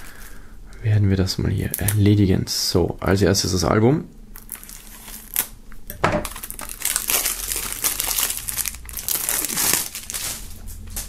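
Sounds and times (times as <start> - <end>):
plastic film crinkling: 4.4 - 5.6, 6.2 - 11.0.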